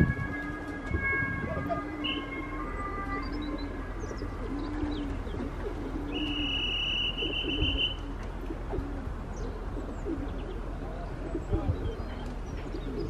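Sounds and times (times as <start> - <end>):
steady high tone: 0.0 - 5.2
pigeons cooing: 0.0 - 13.0
small birds chirping: 9.3 - 13.0.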